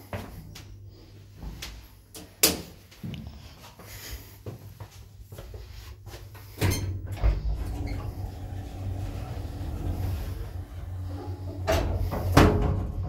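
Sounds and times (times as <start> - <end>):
lift door humming while closing: 6.6 - 13.0.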